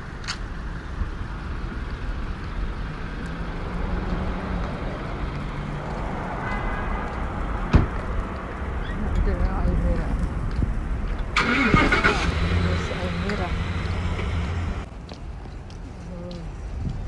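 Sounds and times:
low traffic rumble: 0.0s - 17.0s
sharp click: 0.2s - 0.5s.

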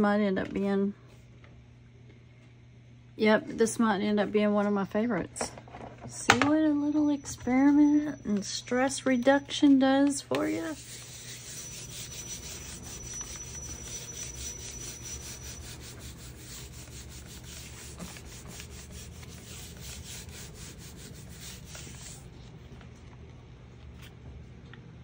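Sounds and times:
palm rubbing paper: 10.3s - 22.8s.

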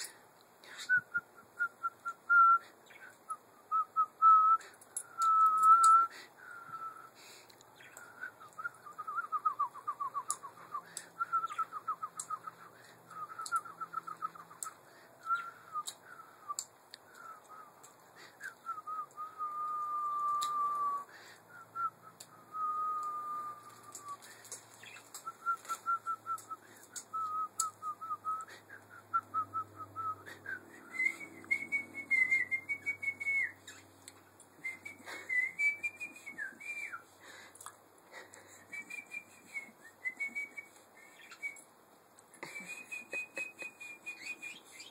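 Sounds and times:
person whistling: 0.9s - 2.6s, 3.7s - 7.1s, 18.4s - 21.1s, 21.8s - 24.2s, 25.2s - 33.6s, 34.6s - 37.0s, 38.6s - 41.6s, 42.4s - 44.9s.

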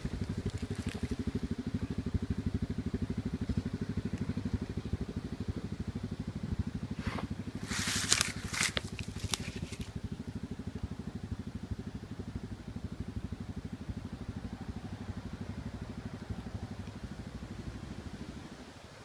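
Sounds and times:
sharp crackling and scraping: 0.0s - 1.2s, 6.9s - 10.0s
quad engine idling: 0.0s - 19.0s.

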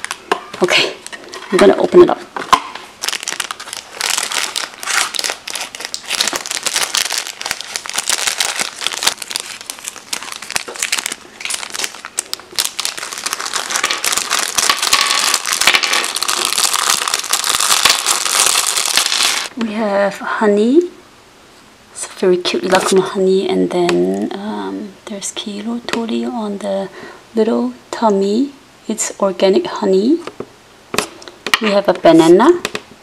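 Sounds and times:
plastic bags crinkling: 0.0s - 19.5s.

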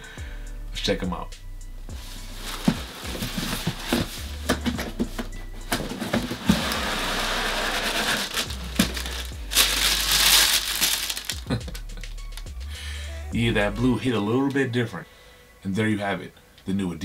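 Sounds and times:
tissue paper rustling: 2.0s - 11.6s
cardboard box knocks and scrapes: 2.5s - 7.0s.

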